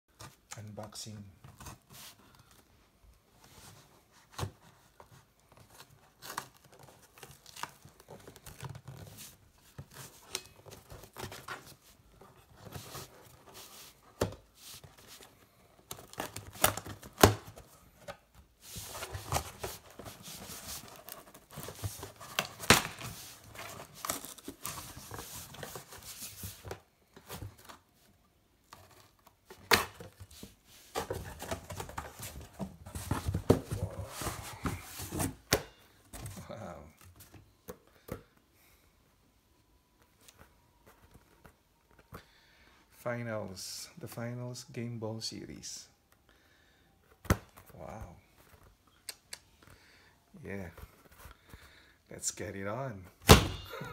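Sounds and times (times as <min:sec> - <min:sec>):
cardboard scraping and rustling: 0:03.4 - 0:27.9, 0:28.7 - 0:35.6.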